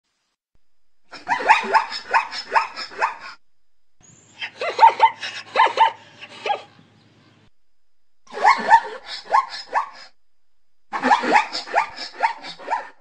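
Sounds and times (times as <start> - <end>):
zebra bark-like calls: 1.1 - 3.4, 4.4 - 6.8, 8.3 - 10.2, 10.9 - 13.0.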